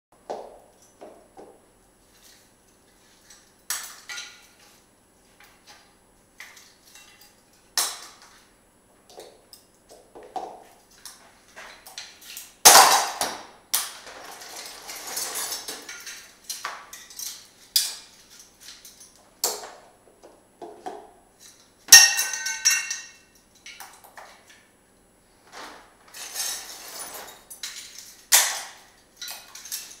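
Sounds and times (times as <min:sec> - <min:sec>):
scrap metal clinking and clanking: 0:14.1 - 0:19.2, 0:26.1 - 0:30.0
metal scraping: 0:25.6 - 0:27.5.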